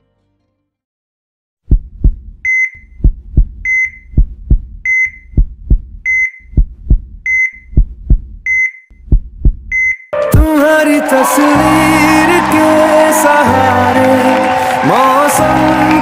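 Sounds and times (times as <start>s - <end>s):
heart monitor beep: 1.7s - 10.1s
heartbeat thumps: 1.7s - 10.5s.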